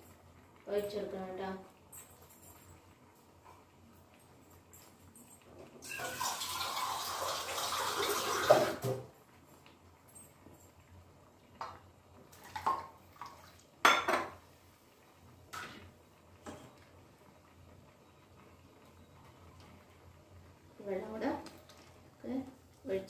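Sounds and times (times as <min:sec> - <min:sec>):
water pouring: 0:05.8 - 0:09.0, 0:12.3 - 0:13.8
kitchen vessels clinking: 0:13.8 - 0:14.4.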